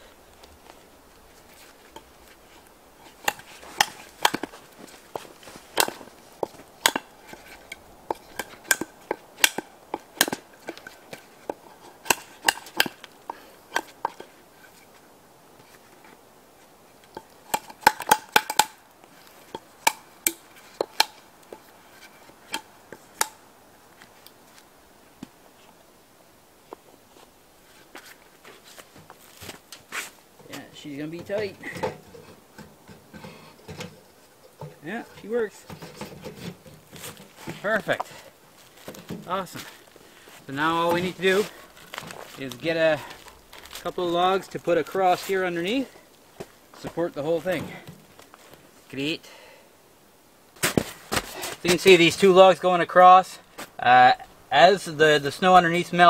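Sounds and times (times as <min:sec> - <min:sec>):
wooden sticks knocking: 0:03.0 - 0:14.4, 0:17.1 - 0:18.8, 0:19.4 - 0:23.4, 0:30.4 - 0:38.2, 0:40.6 - 0:42.3.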